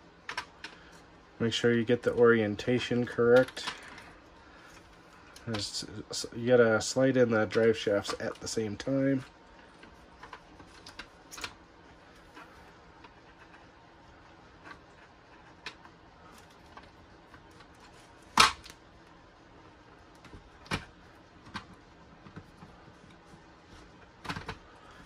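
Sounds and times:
plastic parts clicking together: 24.2s - 25.0s.

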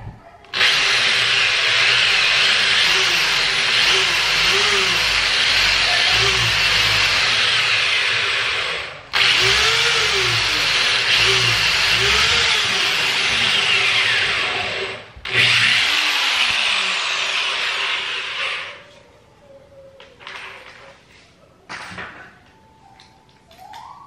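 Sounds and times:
electric drill boring: 0.5s - 18.8s.

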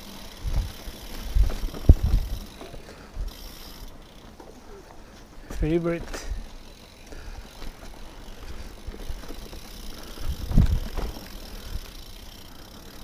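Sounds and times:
bike tyres rumbling on rocks: 0.0s - 4.5s, 6.0s - 13.0s
bike thump onto rock: 10.5s - 11.4s.

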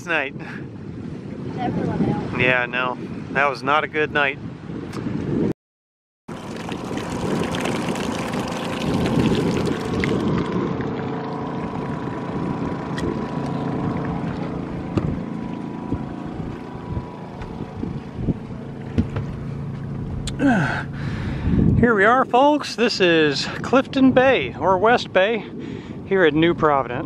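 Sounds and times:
wind on microphone: 0.0s - 5.5s, 6.3s - 27.0s
engine drone: 6.3s - 23.6s
water rushing past boat hull: 6.3s - 26.0s
light knocks: 18.9s - 19.4s.

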